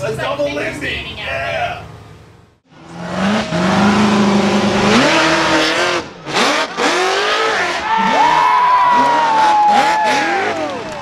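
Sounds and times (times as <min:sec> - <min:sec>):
engine revving: 0:02.7 - 0:11.0.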